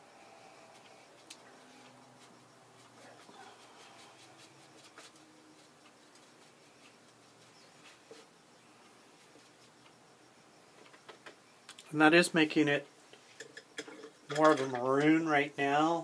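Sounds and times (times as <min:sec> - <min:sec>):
paintbrush scratching on foil: 0:03.1 - 0:08.0.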